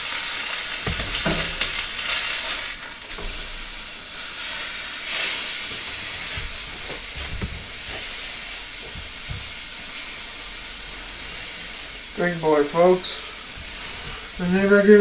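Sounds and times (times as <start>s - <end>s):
meat sizzling in a pan: 0.0s - 15.0s
soft knocks: 6.3s - 8.0s.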